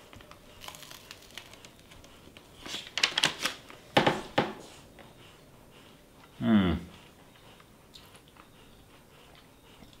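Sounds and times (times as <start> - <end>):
paper wrapper crinkling: 0.1 - 3.7.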